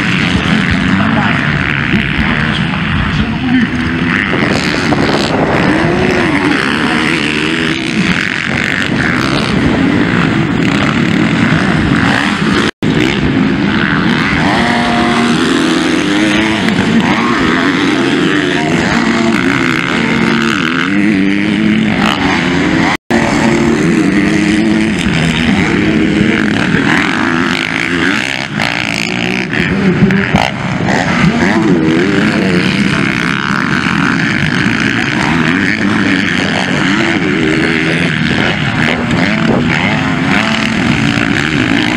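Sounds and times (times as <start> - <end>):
motocross bike engines revving: 0.0 - 41.9.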